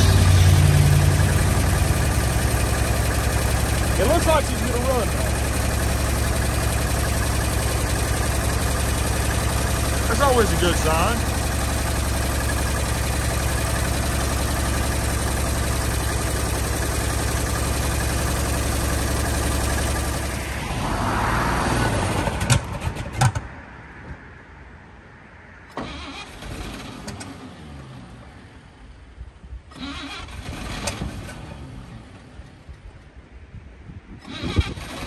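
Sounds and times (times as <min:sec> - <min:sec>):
truck engine running: 0:00.0 - 0:20.8.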